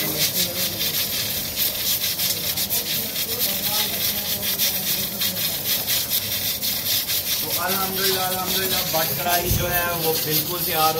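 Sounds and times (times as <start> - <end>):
faint voices: 0.0 - 6.7
curry sizzling and crackling: 0.0 - 10.9.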